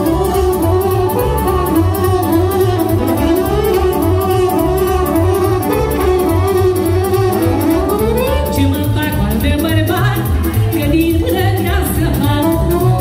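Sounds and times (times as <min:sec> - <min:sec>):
wavering lead melody: 0:00.0 - 0:09.1
live band dance music: 0:00.0 - 0:13.0.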